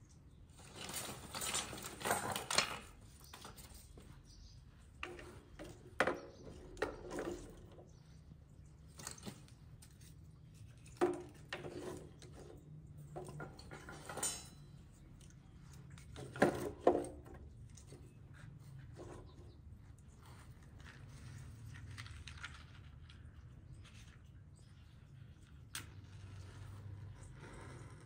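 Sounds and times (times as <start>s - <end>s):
objects knocking and clattering: 0.6s - 3.9s, 5.0s - 8.0s, 10.8s - 14.8s, 16.0s - 17.9s.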